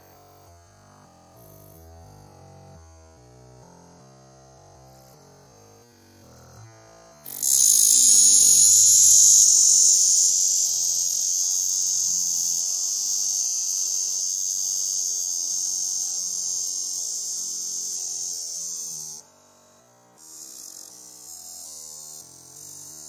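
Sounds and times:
slowed cicada buzz: 0:04.7 - 0:23.0.

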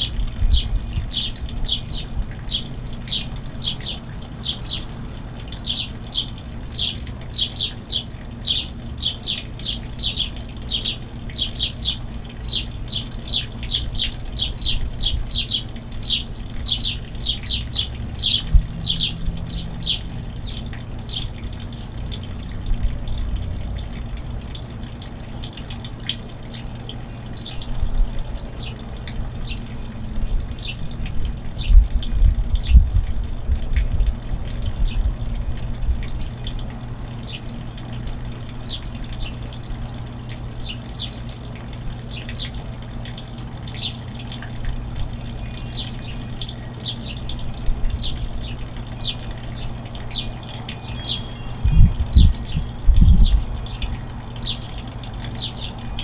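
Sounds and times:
finches chirping: 0:00.0 - 0:21.5, 0:43.7 - 0:44.0, 0:45.1 - 0:56.0.

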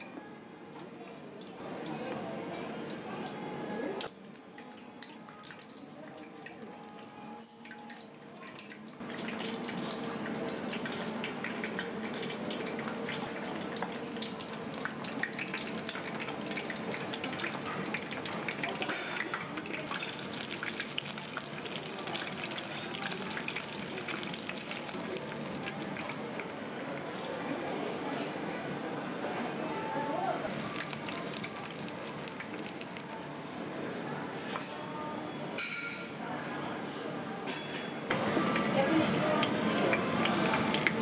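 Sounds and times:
deep-frying oil sizzling: 0:09.0 - 0:27.2, 0:30.5 - 0:33.3, 0:38.1 - 0:41.0.

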